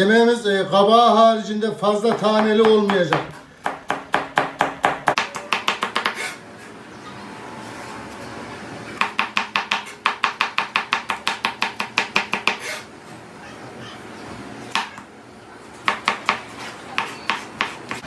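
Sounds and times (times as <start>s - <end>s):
knife chopping on plastic board: 2.1s - 6.2s, 9.0s - 12.8s, 15.8s - 18.0s.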